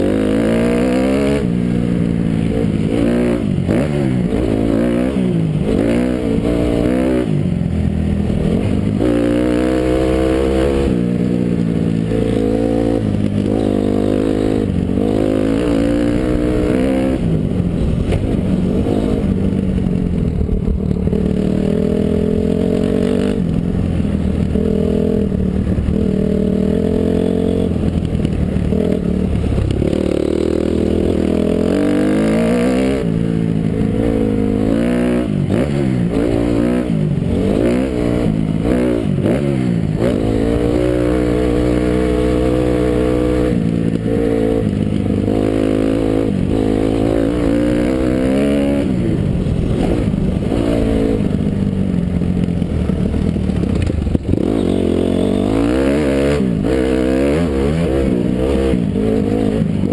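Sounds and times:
motocross engine revving: 0:00.0 - 0:07.5, 0:08.2 - 0:51.6, 0:52.2 - 0:59.9
wind noise: 0:00.0 - 0:59.9.

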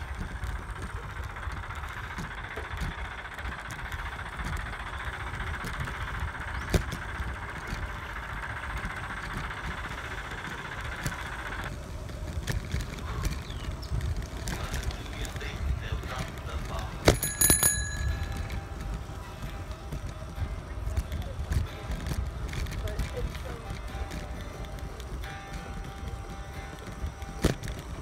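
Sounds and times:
wind rumbling on microphone: 0:00.0 - 0:17.3.

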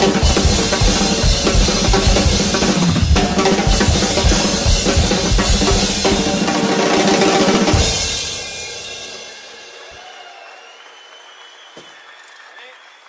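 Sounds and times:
music with bass: 0:00.0 - 0:08.2
fast drum kit playing: 0:00.0 - 0:10.0.

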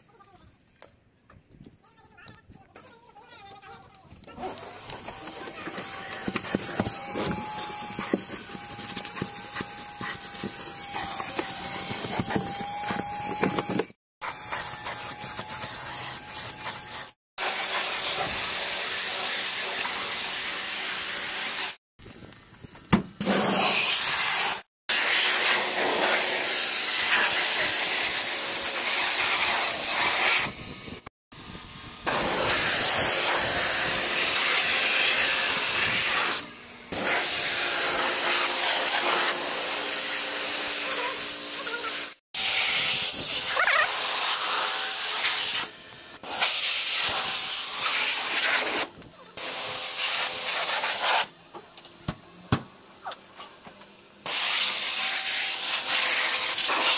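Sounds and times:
high-pressure water spray hissing: 0:32.1 - 0:36.4, 0:41.7 - 0:45.7, 0:46.3 - 0:51.3, 0:54.3 - 0:56.9.

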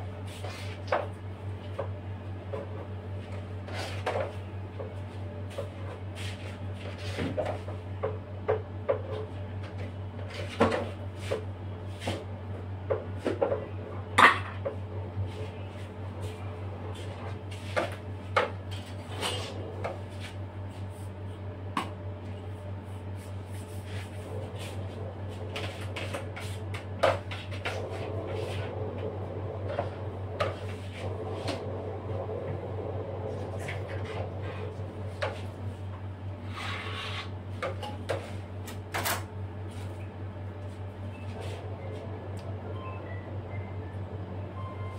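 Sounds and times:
low hum: 0:18.8 - 0:36.9.

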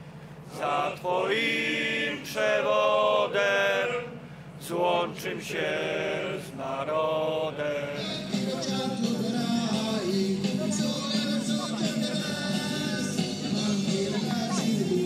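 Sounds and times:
steady low hum: 0:00.0 - 0:15.0
men singing in chant: 0:00.5 - 0:15.0
music: 0:07.8 - 0:15.0.

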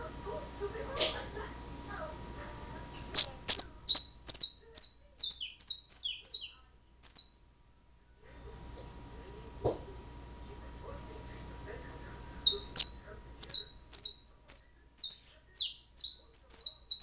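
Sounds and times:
canary singing: 0:03.0 - 0:07.5, 0:12.4 - 0:17.0.

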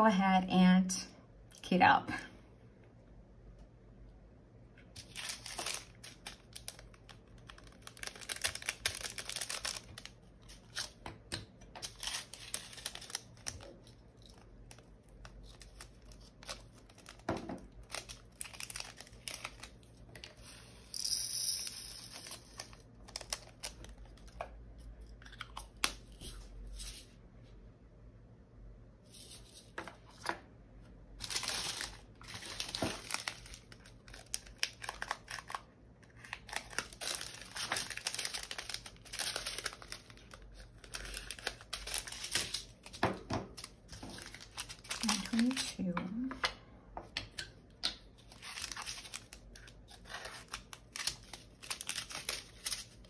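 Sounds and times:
plastic bags crinkling: 0:04.9 - 0:11.0, 0:11.8 - 0:20.4, 0:22.1 - 0:24.3, 0:31.2 - 0:35.6, 0:36.2 - 0:46.0, 0:48.2 - 0:53.0.

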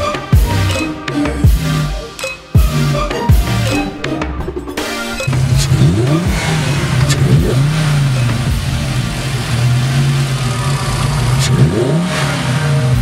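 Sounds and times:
car engine revving: 0:04.7 - 0:13.0.

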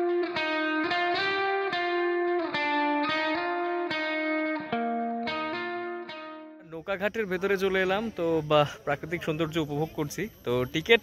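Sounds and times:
plucked guitar music: 0:00.0 - 0:06.8.

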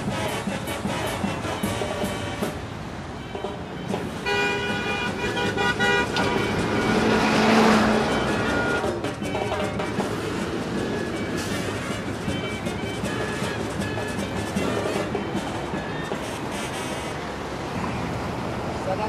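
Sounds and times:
city street traffic: 0:00.0 - 0:19.0
vehicle horn blast: 0:03.2 - 0:10.1
vehicle passing close: 0:05.2 - 0:09.0.

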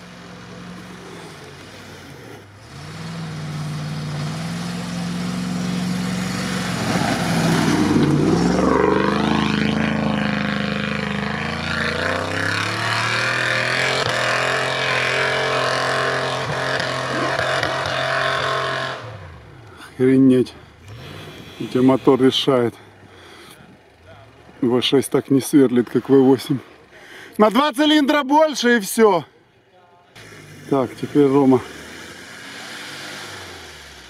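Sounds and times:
engine revving hard: 0:00.8 - 0:19.6, 0:30.2 - 0:34.0.

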